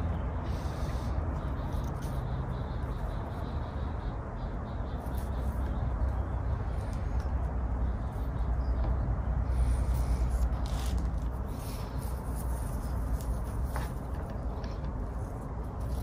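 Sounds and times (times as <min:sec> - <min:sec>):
background hum and hiss: 0:00.0 - 0:16.0.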